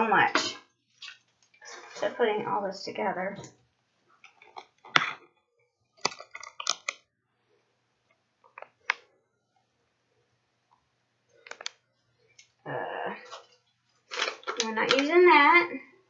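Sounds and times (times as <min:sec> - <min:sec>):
plastic items clicking on countertop: 0:06.0 - 0:07.0, 0:14.1 - 0:15.2
plastic packaging crinkling: 0:06.0 - 0:07.0, 0:13.3 - 0:15.2.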